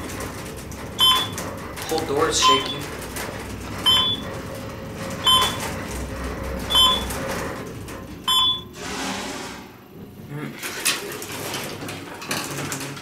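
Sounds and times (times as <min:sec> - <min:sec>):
elevator car low rumble: 0:00.0 - 0:08.8
elevator beep: 0:01.0 - 0:01.4, 0:02.4 - 0:02.9, 0:03.8 - 0:04.4, 0:05.2 - 0:05.7, 0:06.6 - 0:07.2, 0:08.2 - 0:08.8.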